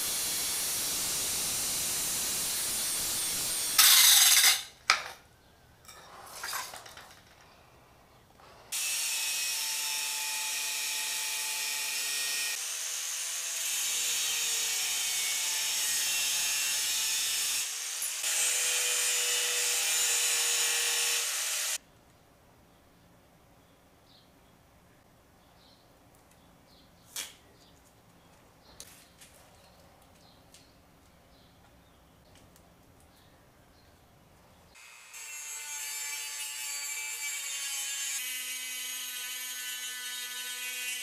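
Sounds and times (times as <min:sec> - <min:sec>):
angle grinder grinding steel: 0:00.1 - 0:04.7.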